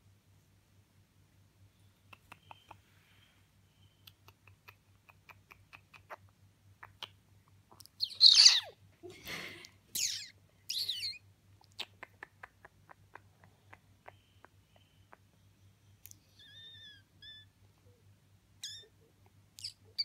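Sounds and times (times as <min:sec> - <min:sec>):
parrot calling: 0:07.9 - 0:08.8, 0:09.9 - 0:11.2, 0:16.2 - 0:17.6, 0:18.6 - 0:19.0.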